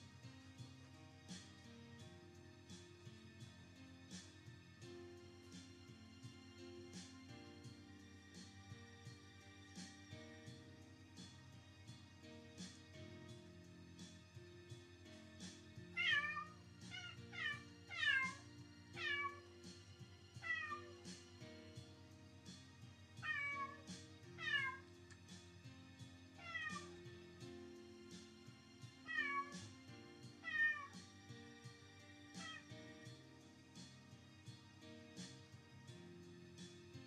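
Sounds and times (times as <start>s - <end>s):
cat meowing: 16.0s - 18.4s, 19.0s - 19.4s, 20.4s - 21.0s, 23.2s - 24.8s, 26.4s - 27.0s, 29.1s - 29.6s, 30.4s - 31.0s, 32.4s - 32.7s.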